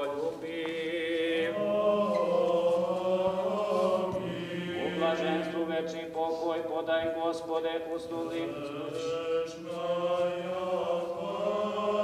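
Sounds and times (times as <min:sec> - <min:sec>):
voices chanting long notes: 0:00.5 - 0:06.8, 0:08.3 - 0:12.0.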